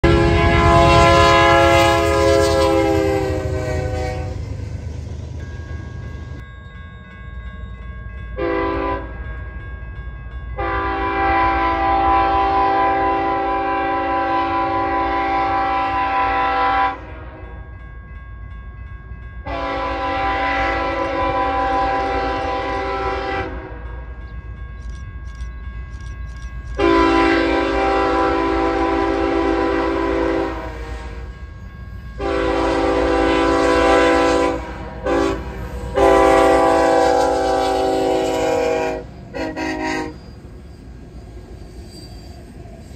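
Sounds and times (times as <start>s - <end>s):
locomotive horn: 0.0s - 4.6s, 8.4s - 9.2s, 10.6s - 17.6s, 19.4s - 24.0s, 26.8s - 31.4s, 32.2s - 40.2s
distant train horn blasts: 0.0s - 4.8s, 8.4s - 9.2s, 10.6s - 17.7s, 19.4s - 24.2s, 26.8s - 31.5s, 32.2s - 40.3s.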